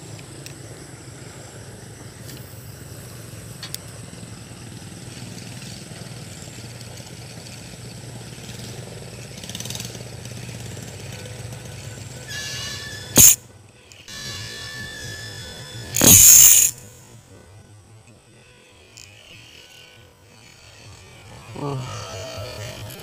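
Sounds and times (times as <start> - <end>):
small engine idling: 0.0 - 23.0
sharp click: 13.2 - 13.4, 16.0 - 16.8.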